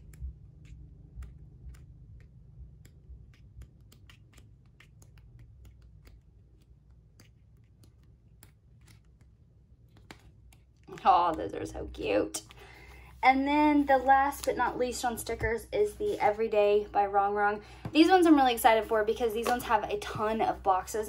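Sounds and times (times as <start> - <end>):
stiff pages being turned: 0.0 - 12.7
low room hum: 0.0 - 21.0.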